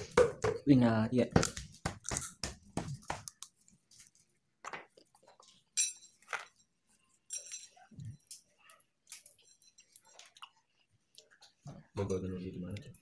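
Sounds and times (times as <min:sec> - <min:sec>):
metal tools clinking: 0:05.7 - 0:10.4.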